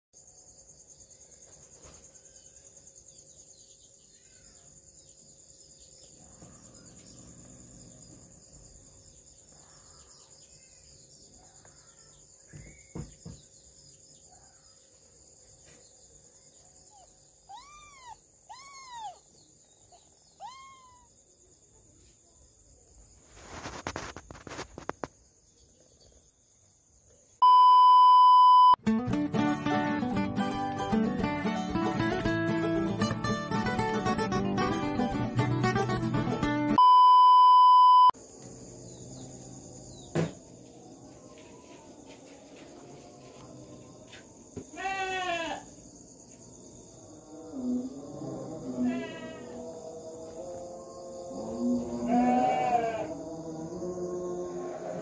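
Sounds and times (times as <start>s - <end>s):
insect chirring: 0.2s - 28.8s, 43.3s - 55.0s
kittens mewing: 16.9s - 21.2s, 52.0s - 53.1s
rustling: 23.1s - 25.1s
loud electronic beep: 27.4s - 28.8s, 36.8s - 38.2s.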